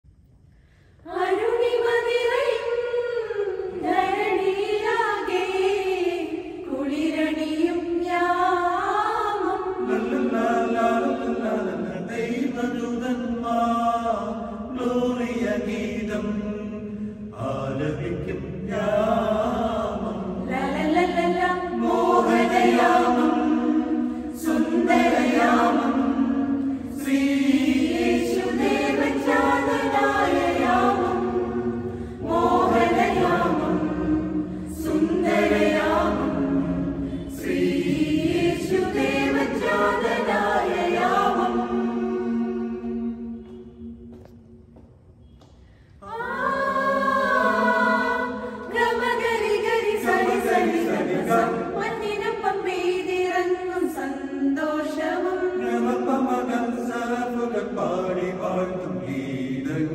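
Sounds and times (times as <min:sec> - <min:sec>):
singers breathing: 0:00.5 - 0:01.1, 0:31.7 - 0:32.3, 0:34.4 - 0:34.8, 0:45.5 - 0:46.0, 0:48.3 - 0:48.7
mixed choir singing a carol: 0:01.0 - 0:44.2, 0:46.0 - 0:59.9.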